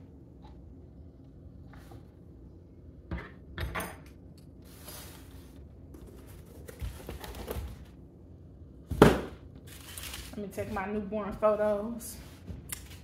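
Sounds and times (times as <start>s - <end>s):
rustling: 9.7s - 10.4s.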